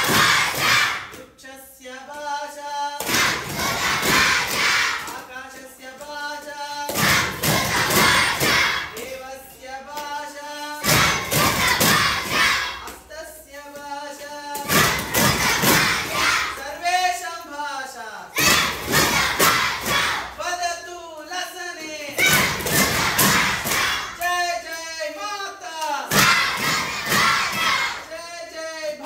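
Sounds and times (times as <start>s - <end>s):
children chanting together: 0.0s - 1.2s, 3.0s - 5.3s, 6.4s - 9.0s, 10.8s - 13.0s, 14.5s - 16.8s, 18.3s - 20.4s, 22.1s - 24.2s, 26.0s - 28.1s.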